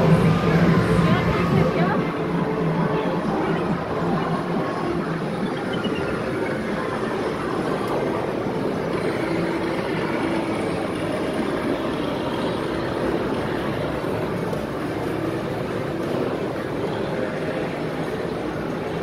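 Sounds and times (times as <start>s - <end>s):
arcade game machines din: 0.0s - 19.0s
falling electronic beeps: 5.2s - 6.7s.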